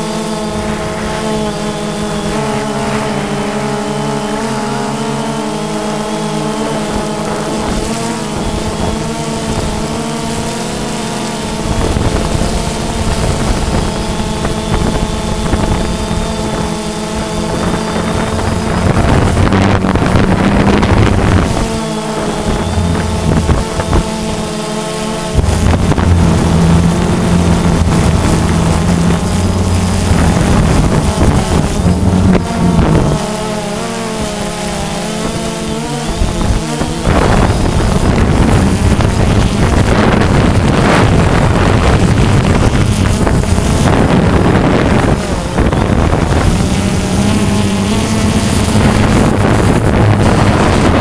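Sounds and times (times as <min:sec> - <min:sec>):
drone motors whining: 0:00.0 - 0:51.0
wind rumbling on microphone: 0:00.0 - 0:51.0.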